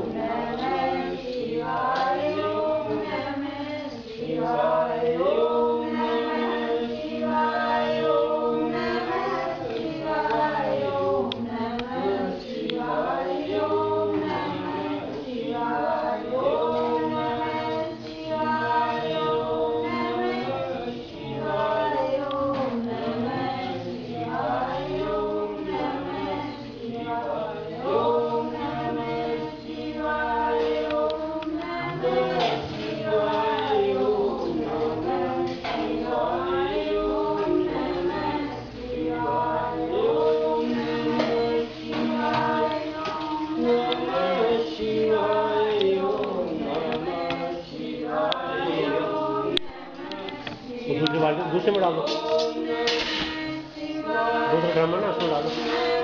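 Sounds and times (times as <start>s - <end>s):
group chanting in long notes: 0.0s - 56.0s.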